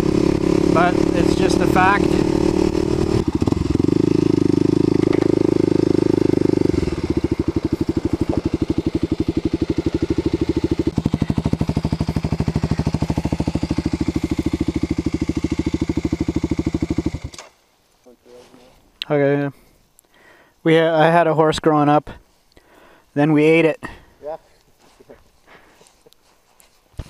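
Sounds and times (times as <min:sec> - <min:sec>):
motorcycle engine running: 0:00.0 - 0:17.4.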